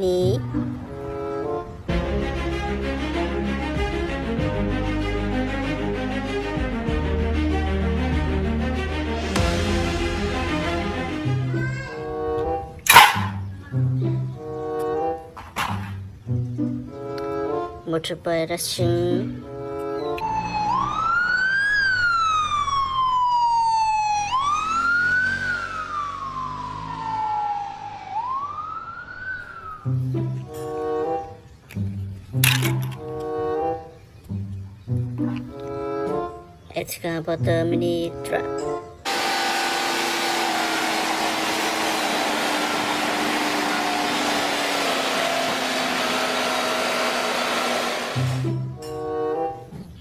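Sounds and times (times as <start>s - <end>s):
police siren wailing: 19.9s - 31.4s
excavator diesel engine drone: 39.0s - 49.7s.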